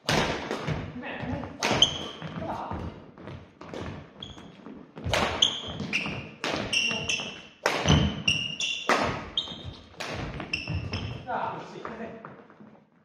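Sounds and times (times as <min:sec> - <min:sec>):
racket hitting shuttlecock: 0:00.0 - 0:00.9, 0:01.5 - 0:02.4, 0:05.0 - 0:11.2
shoes squeaking on wooden floor: 0:00.7 - 0:13.0.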